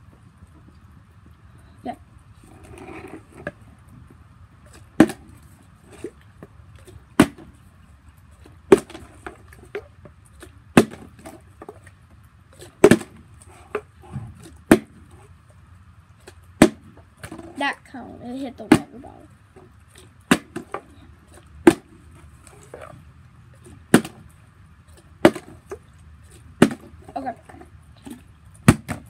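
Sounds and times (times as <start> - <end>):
plastic bottles landing on concrete: 23.9 - 24.3, 26.6 - 27.1.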